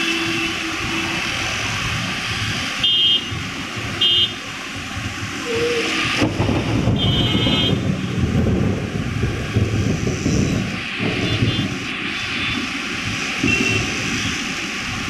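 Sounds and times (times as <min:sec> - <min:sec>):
rain hissing: 0:00.0 - 0:15.0
deep uneven rumble: 0:04.8 - 0:12.0.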